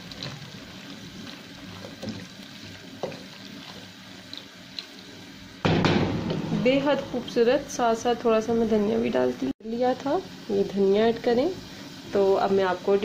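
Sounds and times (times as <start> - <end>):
spatula scraping pot: 0.0 - 4.5
spatula stirring wet vegetables: 0.0 - 5.6
loud knock on pot: 5.6 - 6.6.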